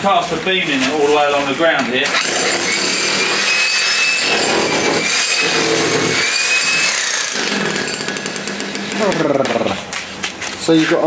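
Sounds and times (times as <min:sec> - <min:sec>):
power tool motor whine: 0:02.0 - 0:09.0.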